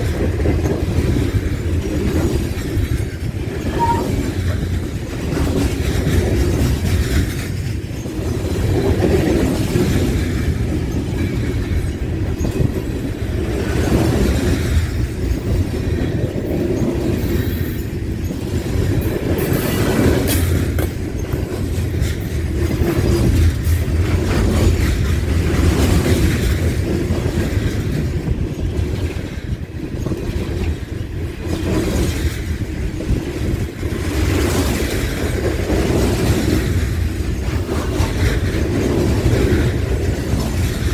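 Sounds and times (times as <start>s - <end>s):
train wheels rumbling on rails: 0.0s - 40.9s
wheel clacks: 0.0s - 40.9s.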